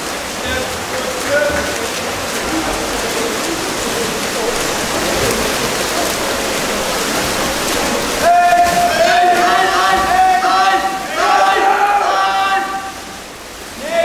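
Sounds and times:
faint voices: 0:00.0 - 0:14.0
water splashing: 0:00.0 - 0:14.0
loud shout: 0:08.2 - 0:13.1, 0:13.8 - 0:14.0.

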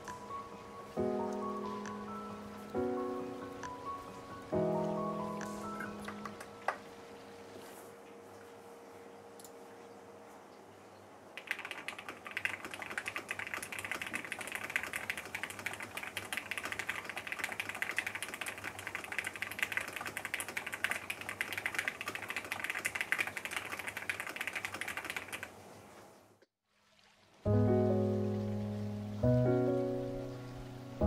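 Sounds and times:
fast typing on mechanical keyboard: 0:11.4 - 0:25.6.

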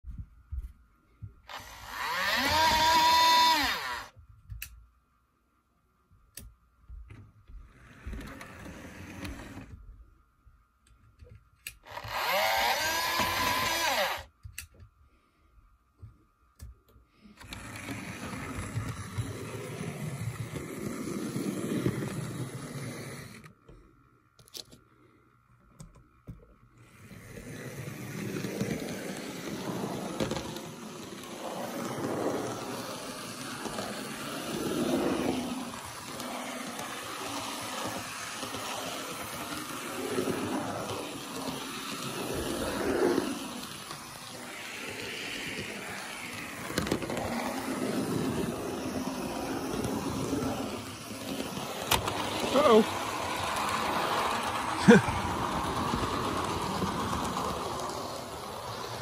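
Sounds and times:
model train motor whir: 0:01.5 - 0:04.1, 0:07.7 - 0:09.7, 0:11.6 - 0:14.3, 0:17.4 - 0:23.6, 0:26.8 - 0:59.0
wheels on rails: 0:01.5 - 0:04.1, 0:11.8 - 0:14.3, 0:17.4 - 0:23.7, 0:26.8 - 0:59.0.

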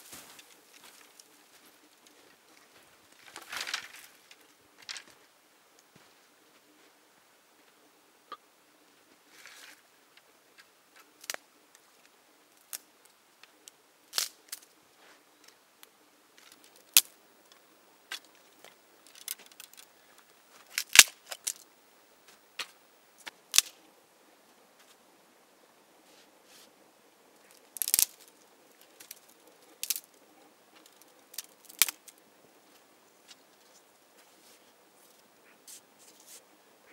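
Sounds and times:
dry sticks snapping: 0:14.1 - 0:14.7, 0:16.4 - 0:17.2, 0:18.1 - 0:19.9, 0:20.7 - 0:21.6, 0:22.6 - 0:23.7, 0:27.5 - 0:30.2, 0:30.8 - 0:32.2.

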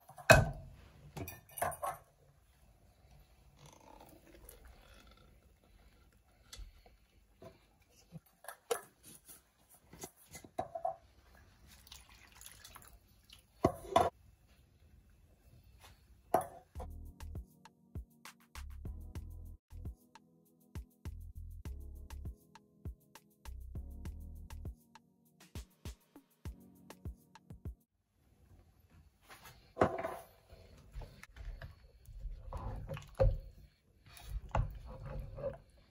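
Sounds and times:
soft wet pouring: 0:11.2 - 0:13.6, 0:32.0 - 0:35.2.

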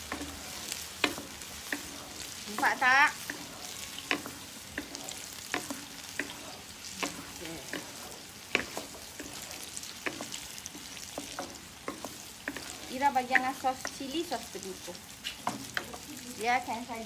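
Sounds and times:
sharp pops and clicks: 0:00.0 - 0:01.9, 0:02.5 - 0:14.2
sauce sizzling in a wok: 0:00.0 - 0:17.0
wooden spatula stirring: 0:00.0 - 0:17.0.

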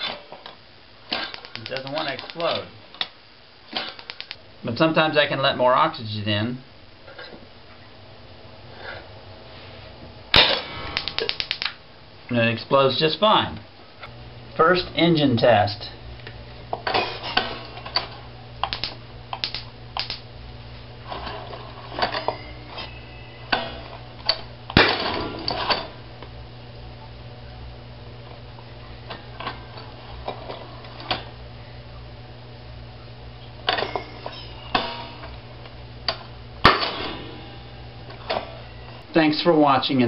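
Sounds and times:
sharp metallic crack: 0:10.3 - 0:11.8, 0:36.6 - 0:37.6.

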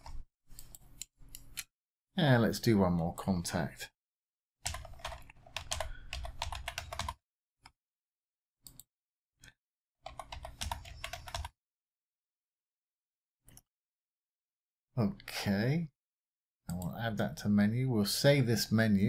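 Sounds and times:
computer keyboard typing: 0:04.6 - 0:07.2, 0:10.0 - 0:11.6.

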